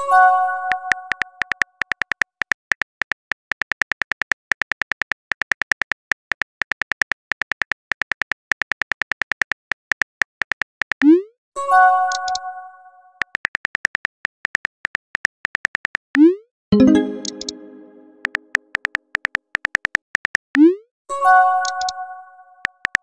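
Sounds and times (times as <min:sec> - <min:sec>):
keyboard typing clicks: 0:00.6 - 0:11.2, 0:12.1 - 0:12.5, 0:13.2 - 0:20.7, 0:21.6 - 0:23.0
bright ringing chime: 0:16.8 - 0:18.2.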